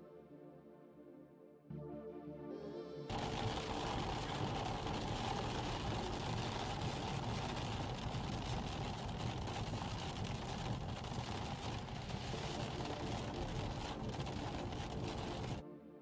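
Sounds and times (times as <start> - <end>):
engine and wet tyres rumble: 3.1 - 15.6
rain pattering on car: 3.1 - 15.6
windshield wipers: 3.1 - 15.6.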